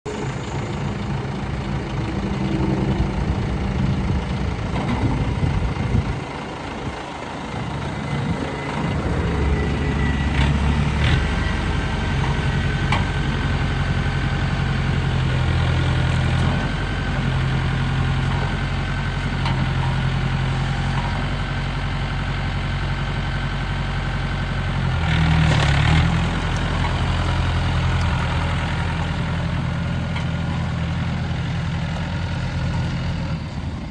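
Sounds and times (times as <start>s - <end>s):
tractor diesel engine running: 0.0s - 33.9s.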